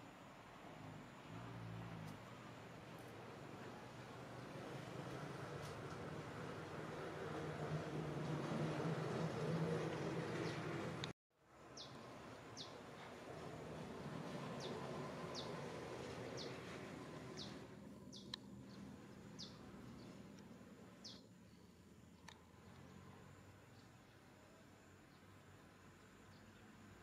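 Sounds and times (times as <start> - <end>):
outdoor background hiss: 0.0 - 27.0
bird chirping: 14.6 - 15.6, 17.3 - 20.2, 21.0 - 21.8.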